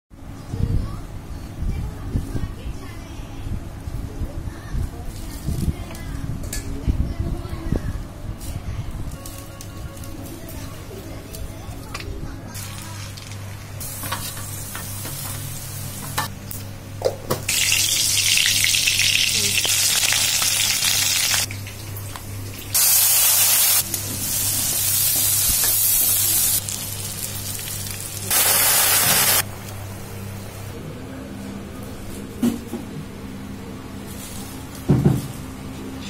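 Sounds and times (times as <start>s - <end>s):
hot oil sizzling: 17.5s - 29.4s.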